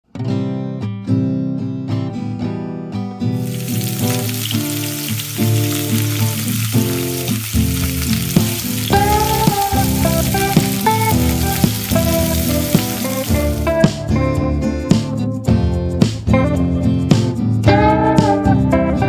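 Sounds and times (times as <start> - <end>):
guitar music: 0.1 - 19.0
hot oil sizzling: 3.4 - 13.9.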